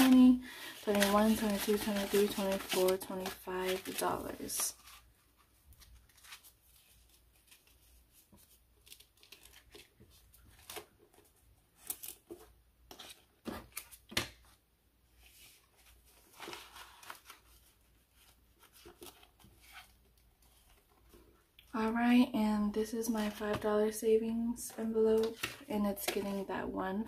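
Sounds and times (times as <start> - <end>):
plastic pouch crinkling: 0.0 - 4.8
paper bills rustling: 0.0 - 9.9.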